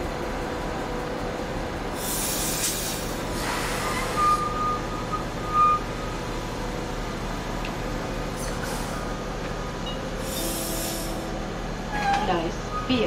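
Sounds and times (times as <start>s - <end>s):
train rolling slowly past: 0.0s - 13.0s
air hiss: 2.0s - 4.2s, 10.2s - 11.2s
high-pitched squeals: 11.9s - 13.0s.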